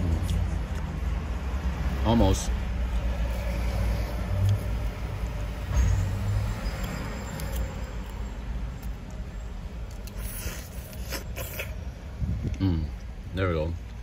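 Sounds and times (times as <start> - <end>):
wet slurping and smacking: 9.8 - 11.9.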